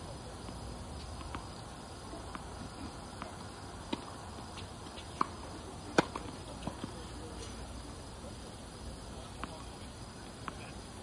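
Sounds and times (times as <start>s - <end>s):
tennis ball bouncing on hard court: 0.5s - 7.0s.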